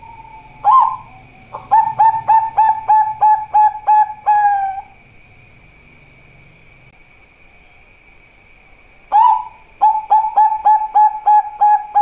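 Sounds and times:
dove cooing: 0.0s - 5.0s, 9.1s - 12.0s.

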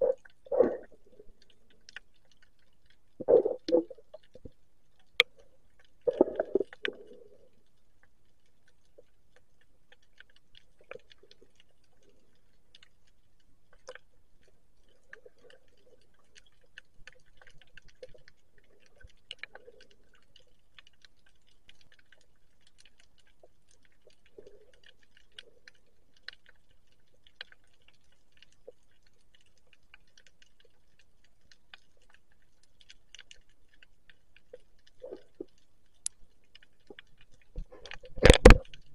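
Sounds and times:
muffled underwater swishes: 0.0s - 1.9s
underwater crackle of clicks: 0.0s - 38.9s.

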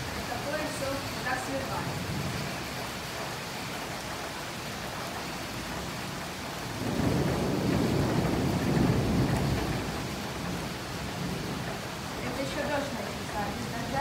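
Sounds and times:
steady rain hissing: 0.0s - 14.0s
rumble of thunder: 1.8s - 3.1s, 4.8s - 14.0s.

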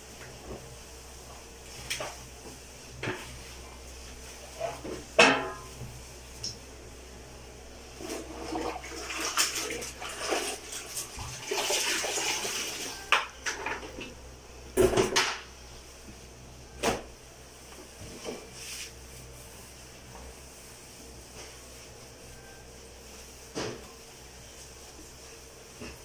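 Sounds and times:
water splashing in bucket: 8.2s - 13.1s
cloth wiping wet tiles: 18.0s - 26.0s.

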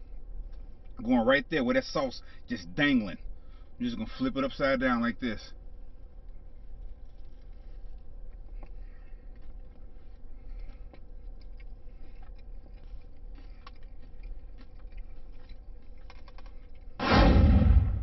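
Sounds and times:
low hum: 0.0s - 18.0s
man chewing crispy food: 6.8s - 17.0s.

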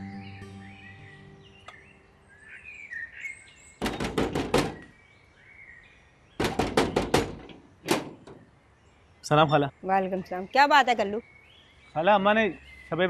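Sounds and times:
knuckles knocking on metal door: 3.8s - 4.9s, 6.4s - 8.2s.

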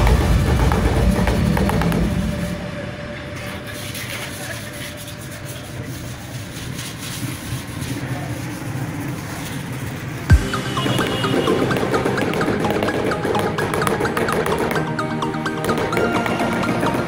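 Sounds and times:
hiss: 0.0s - 10.3s.

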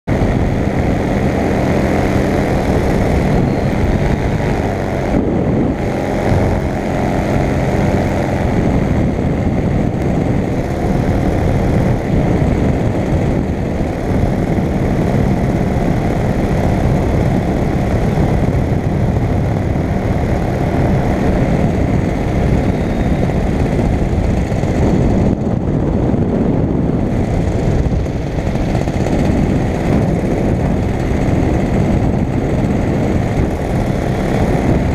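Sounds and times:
paramotor engine drone: 0.0s - 34.9s
airflow noise: 0.1s - 34.9s.

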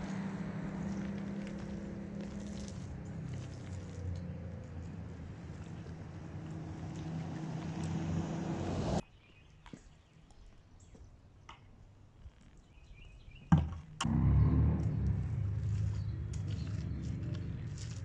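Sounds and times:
low motor hum: 0.0s - 9.0s, 14.0s - 18.0s.

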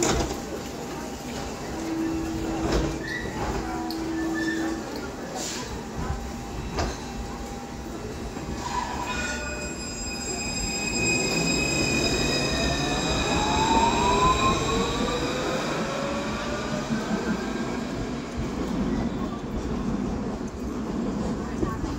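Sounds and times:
tram motor whine rising: 9.8s - 18.4s.

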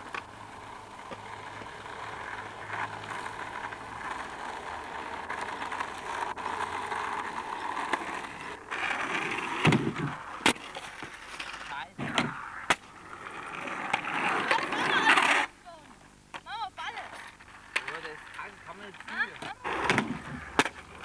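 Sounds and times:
skateboard wheels rolling on asphalt: 0.0s - 21.0s
skateboard knock: 9.4s - 11.1s, 12.0s - 12.8s, 19.1s - 21.0s.

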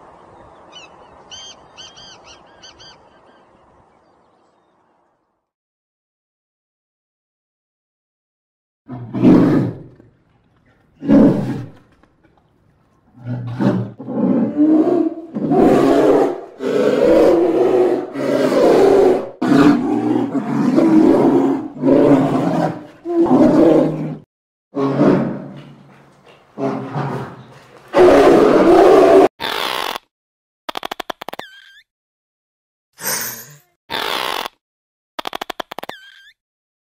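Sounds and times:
polar bears growling and roaring: 8.9s - 12.0s, 13.1s - 29.3s.

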